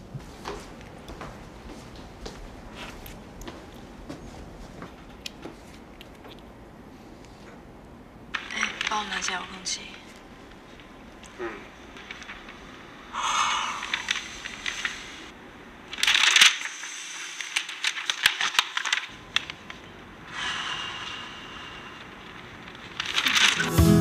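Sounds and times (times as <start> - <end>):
paper rustling and pages turning: 8.3 - 9.4, 11.9 - 12.8, 15.9 - 19.9, 22.4 - 23.8
breathy sigh: 20.3 - 22.1.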